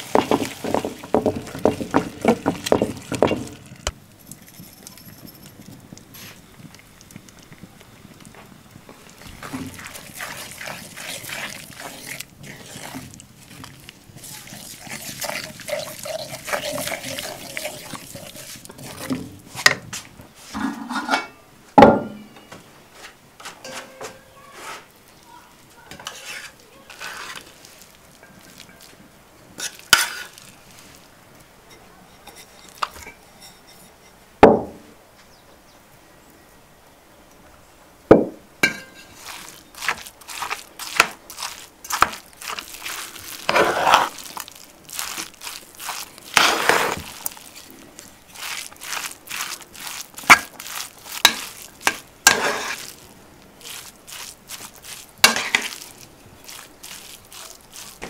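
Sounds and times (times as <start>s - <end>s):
spoon stirring in pot: 0.0s - 8.1s, 8.9s - 19.9s, 25.9s - 29.0s, 29.6s - 30.6s, 38.6s - 58.0s
kitchenware clatter: 20.6s - 22.2s, 38.6s - 40.0s
dishes clinking: 20.6s - 22.4s, 23.6s - 24.4s, 38.6s - 39.3s.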